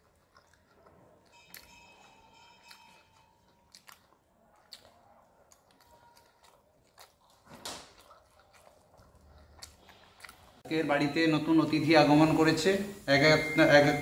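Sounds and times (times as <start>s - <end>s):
soft chewing: 0.0s - 10.7s.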